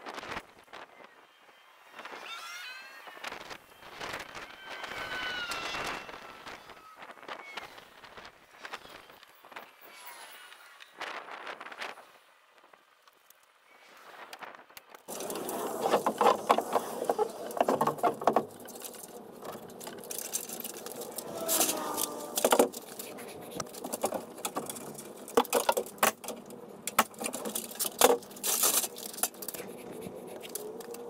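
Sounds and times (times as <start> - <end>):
sharp wood cracks: 14.3 - 31.0.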